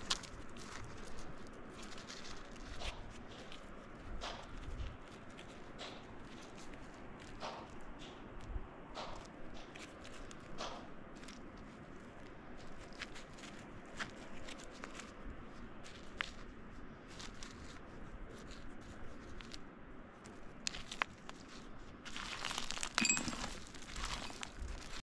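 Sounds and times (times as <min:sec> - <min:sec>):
digging scraping and rustling: 0:09.0 - 0:25.0
rock fragments crunching: 0:22.1 - 0:25.0
ringing clink: 0:23.0 - 0:23.5.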